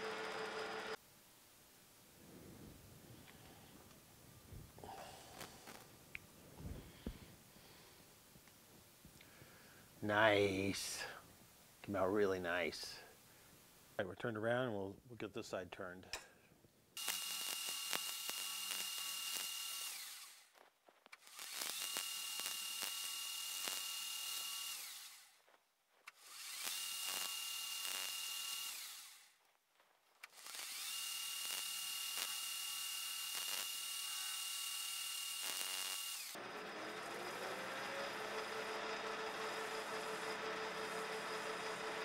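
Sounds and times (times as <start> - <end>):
lathe running hum: 0.0 - 1.0, 36.2 - 42.0
metal lathe cutting with whine: 0.0 - 1.0, 36.2 - 42.0.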